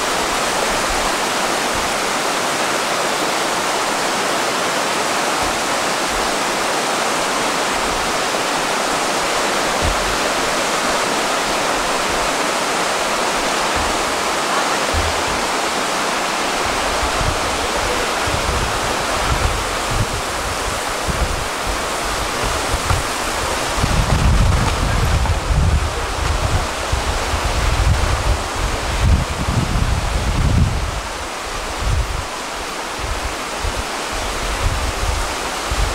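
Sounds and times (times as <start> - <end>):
river rushing over rocks: 0.0 - 35.9
wind buffeting on microphone: 7.7 - 35.9.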